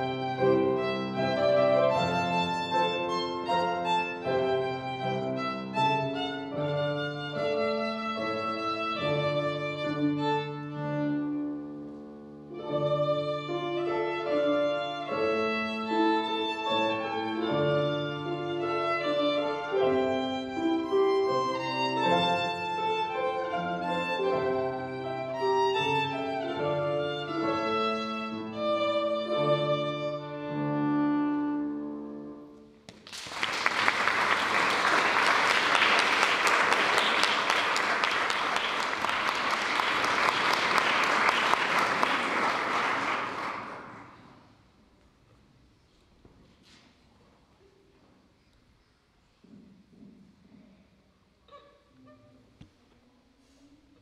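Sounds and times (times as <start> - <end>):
violin melody with accompaniment: 0.0 - 32.7
audience applause: 33.0 - 44.2.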